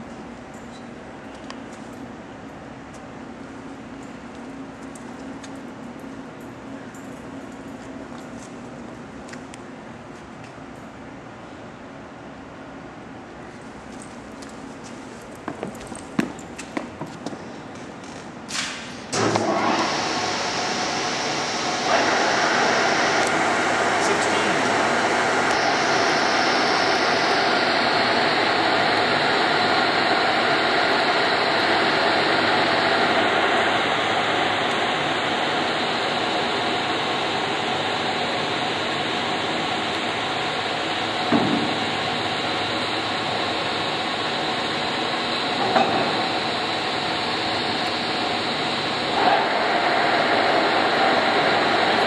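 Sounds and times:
lathe humming: 19.4 - 52.0.

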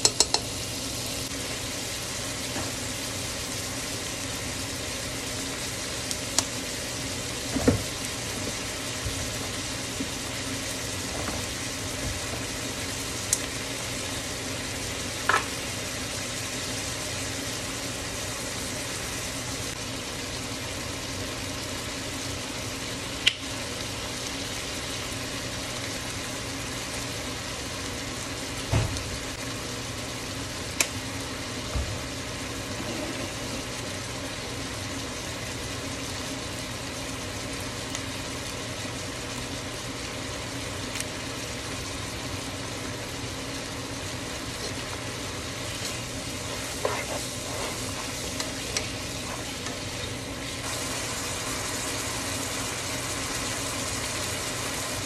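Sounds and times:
food sizzling in a pot: 0.0 - 55.0
steady low hum: 41.3 - 55.0.

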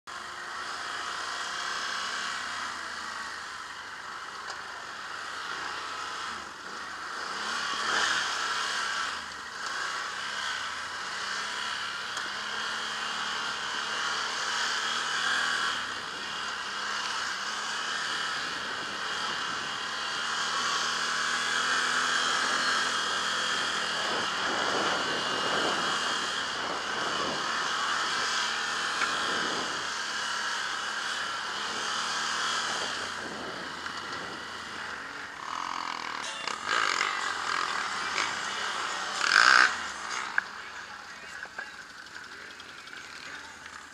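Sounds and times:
atv engine running: 0.1 - 43.9.

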